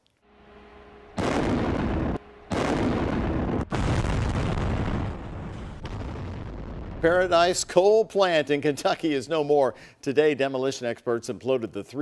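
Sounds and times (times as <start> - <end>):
blasting and rumbling: 0.4 - 7.6
demolition blast: 1.1 - 7.6.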